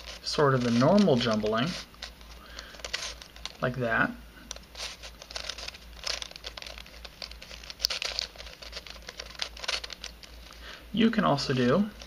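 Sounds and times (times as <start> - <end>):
puzzle pieces clicking and scraping: 0.0 - 3.6, 4.5 - 10.5.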